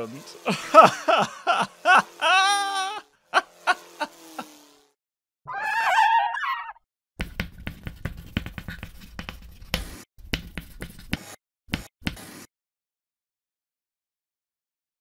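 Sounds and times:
pencil scratching on paper: 7.2 - 12.5.

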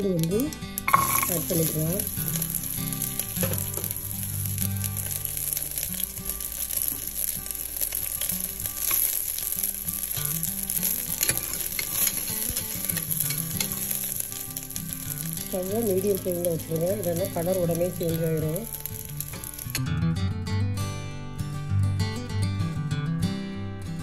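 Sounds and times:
garlic sizzling in oil: 0.0 - 19.8
mustard seeds spluttering: 0.0 - 19.8
metal ladle stirring in pan: 0.8 - 4.1, 5.0 - 14.7.

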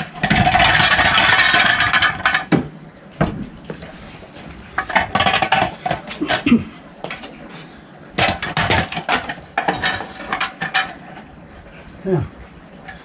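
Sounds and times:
metal clanks: 0.0 - 2.7, 8.2 - 11.3.

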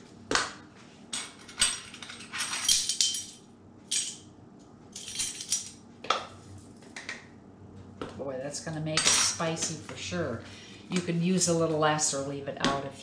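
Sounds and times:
metal measuring spoons clinking: 1.2 - 4.2.

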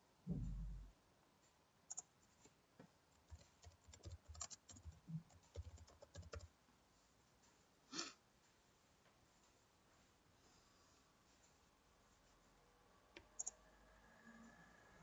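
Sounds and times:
keyboard typing: 1.9 - 2.1, 3.1 - 6.5, 13.2 - 13.6.

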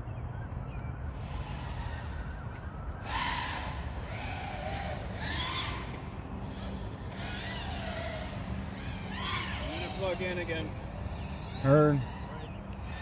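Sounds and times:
quadcopter motors whining: 1.0 - 13.0.

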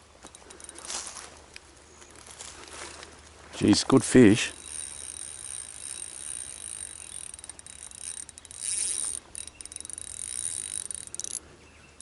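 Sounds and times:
fishing reel clicking and whirring: 0.2 - 2.4, 4.1 - 11.5.

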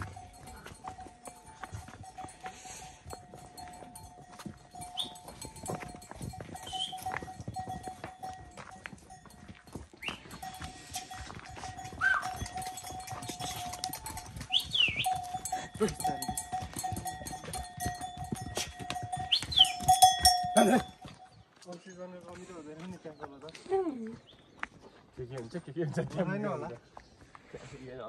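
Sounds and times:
livestock bells ringing: 0.0 - 22.4.

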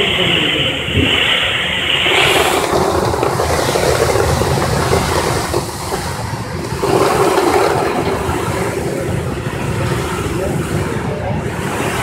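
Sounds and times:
machine mechanical rumble: 0.0 - 11.4
popcorn tumbling in drum: 2.1 - 8.6.

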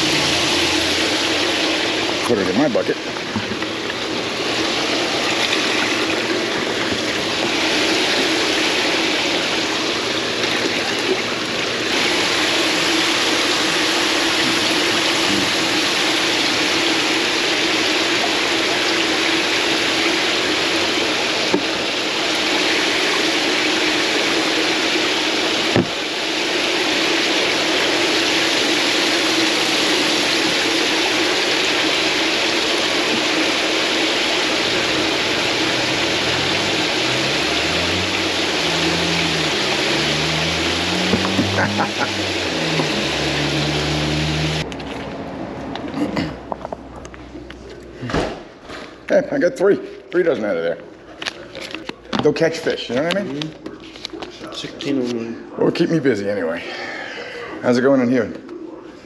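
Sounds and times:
water running and splashing: 0.0 - 44.7
pump humming: 0.0 - 46.2.

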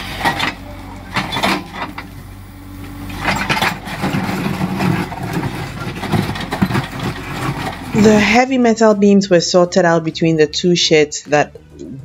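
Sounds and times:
excavator engine running: 0.0 - 12.0
bucket scraping and knocking: 3.2 - 8.4.

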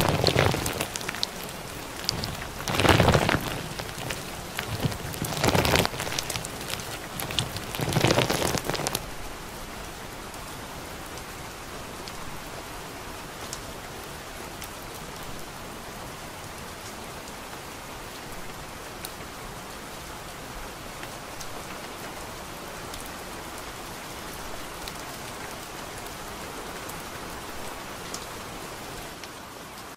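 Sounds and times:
steady rainfall: 0.0 - 29.9.

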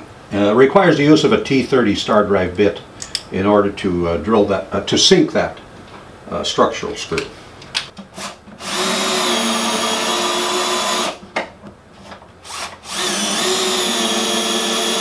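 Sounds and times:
cordless drill motor whining: 8.2 - 11.2, 12.4 - 15.0.

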